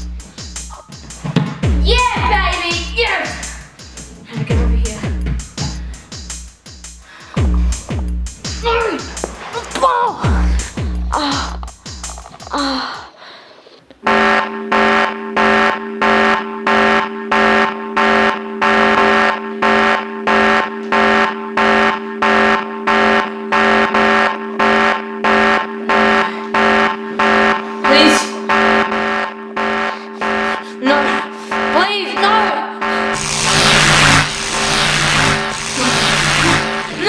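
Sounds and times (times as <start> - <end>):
electronic alarm beeping: 14.1 - 37.0.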